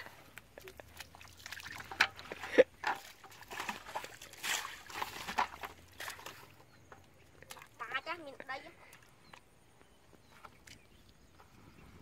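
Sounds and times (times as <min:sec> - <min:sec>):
bucket splashing through muddy water: 0:00.0 - 0:09.5.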